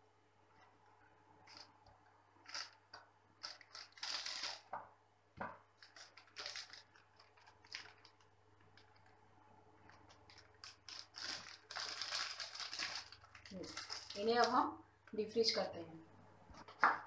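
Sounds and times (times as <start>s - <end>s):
plastic bag crinkling: 2.4s - 4.8s, 5.8s - 9.2s, 9.8s - 14.6s.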